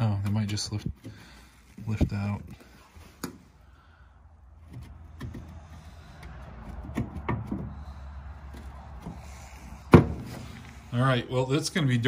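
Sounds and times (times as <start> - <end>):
tractor engine idling: 3.4 - 12.0.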